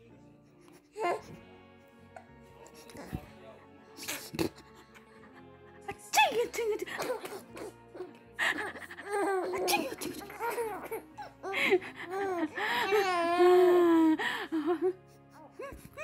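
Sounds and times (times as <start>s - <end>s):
baby laughing and squealing: 8.7s - 11.3s.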